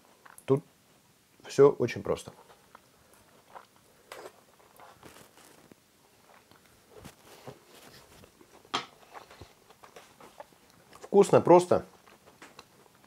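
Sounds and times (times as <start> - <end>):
man chewing noodles: 2.7 - 11.1, 11.9 - 13.0.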